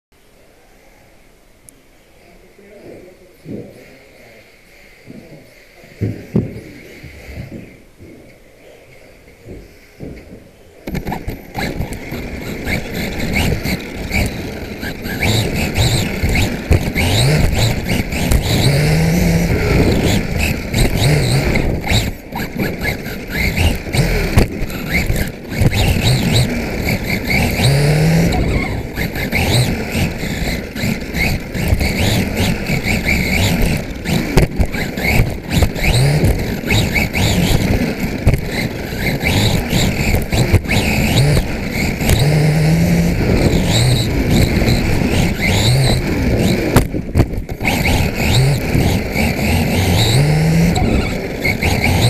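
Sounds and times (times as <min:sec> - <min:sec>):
chassis rattles and knocks: 0:09.5 - 0:52.0
electric motor whine: 0:10.8 - 0:52.0.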